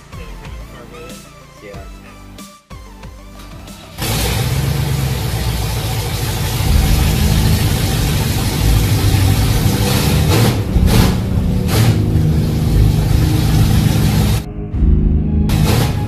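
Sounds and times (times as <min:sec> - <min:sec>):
loud van engine running: 0:03.6 - 0:16.0.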